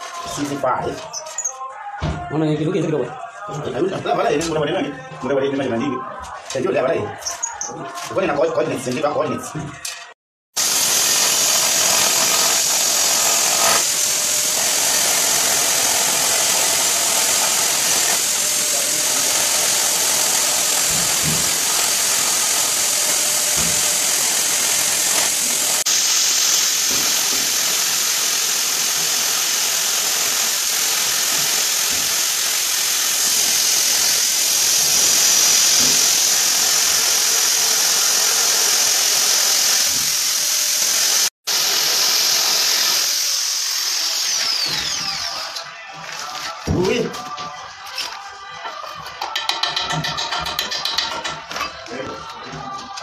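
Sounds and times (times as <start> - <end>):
electric drill grinding through tile: 10.6 - 46.6, 49.2 - 51.9.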